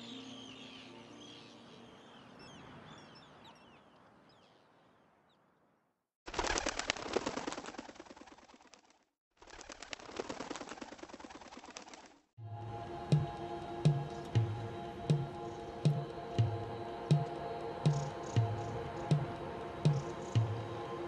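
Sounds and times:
birds chirping: 0.0s - 5.4s
many bird wings flapping: 6.3s - 12.3s.

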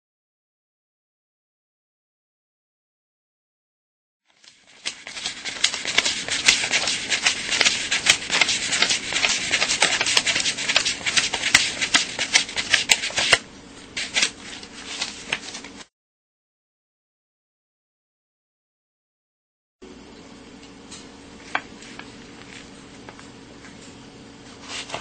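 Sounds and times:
banknotes flicked while counting: 4.5s - 13.4s.

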